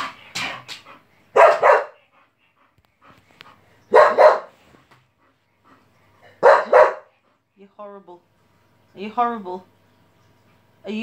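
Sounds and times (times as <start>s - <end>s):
dog barking: 1.4s - 2.0s, 3.9s - 4.6s, 6.4s - 7.1s.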